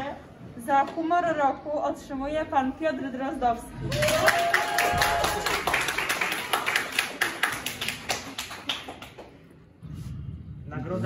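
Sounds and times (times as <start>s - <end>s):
people clapping: 3.8s - 9.5s.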